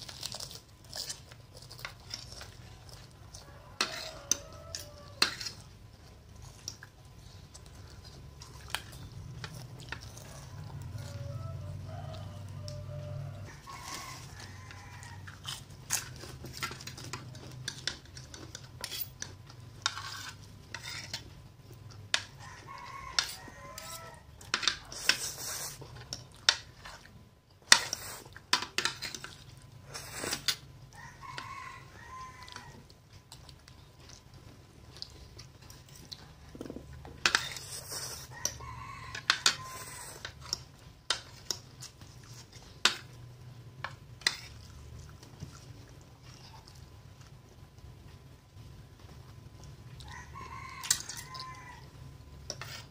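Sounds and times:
rooster crowing: 3.1 - 5.6, 10.1 - 15.6, 22.2 - 24.9, 30.9 - 32.9, 38.2 - 40.2, 50.0 - 52.0
cutlery scraping on a plate: 3.8 - 5.7, 15.0 - 21.3, 23.1 - 27.0, 36.5 - 43.1, 44.2 - 44.6, 52.5 - 52.9.

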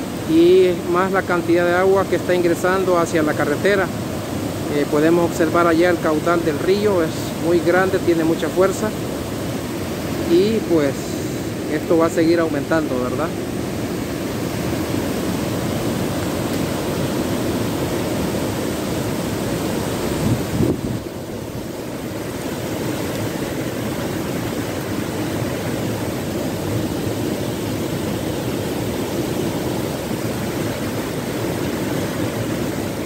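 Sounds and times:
flooding river rushing: 0.0 - 33.0
rain falling: 21.0 - 33.0.

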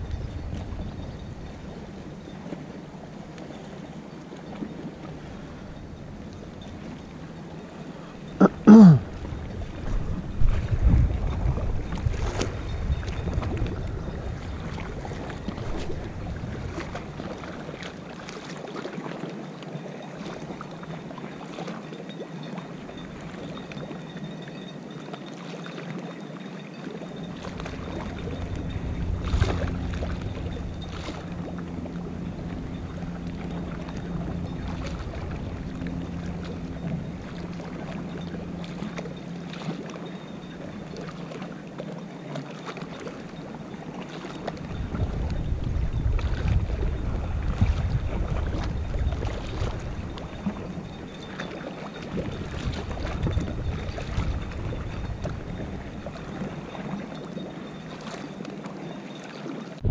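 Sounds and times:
wind buffeting microphone: 0.0 - 2.3, 9.2 - 17.7, 27.6 - 38.8, 44.6 - 51.0, 52.1 - 56.8
steady low hum: 27.1 - 41.8.

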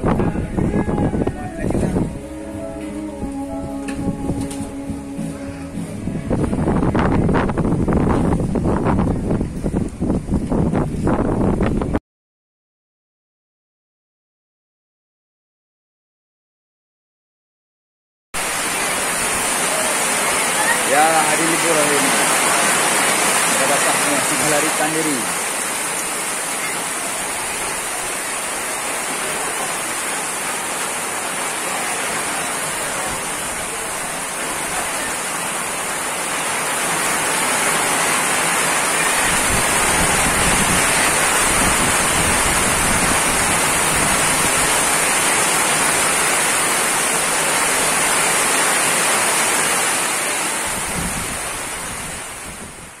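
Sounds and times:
wind buffeting microphone: 0.0 - 2.2, 6.0 - 12.0, 39.1 - 44.9, 50.7 - 53.0
heavy rain on metal roofs: 0.0 - 10.0, 18.4 - 53.0.

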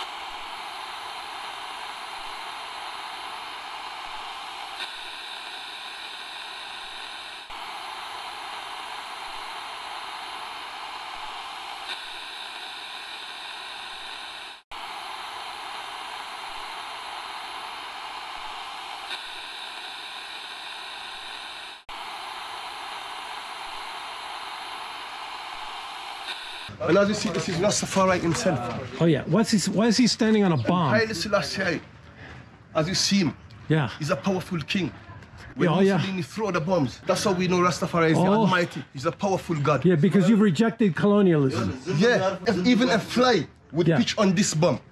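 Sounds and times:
static hiss: 0.0 - 28.6.

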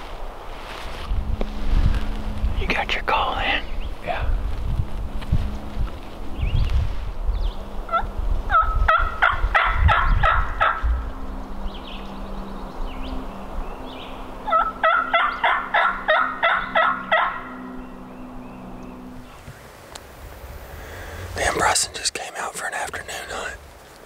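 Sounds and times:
turkey call yelps: 7.9 - 10.8, 14.5 - 17.7.

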